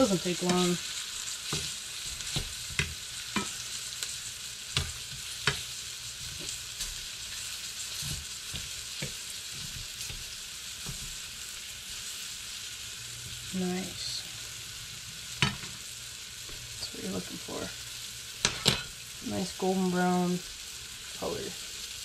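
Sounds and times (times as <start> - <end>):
fish sizzling in butter: 0.0 - 22.0
fork clicking and scraping pan: 1.4 - 3.6, 4.8 - 5.7.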